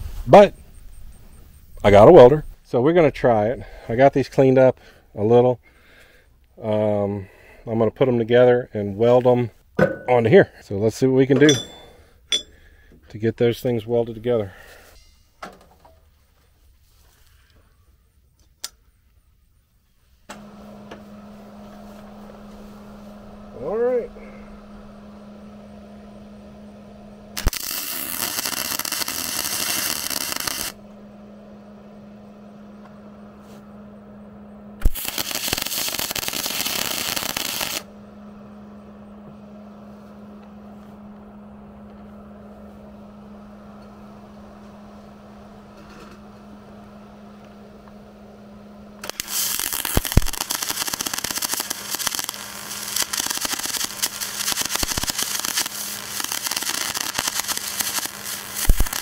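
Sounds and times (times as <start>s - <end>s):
steady low hum: 0.0s - 59.0s
welder arc crackling: 20.3s - 31.1s, 34.8s - 38.0s, 49.0s - 59.0s.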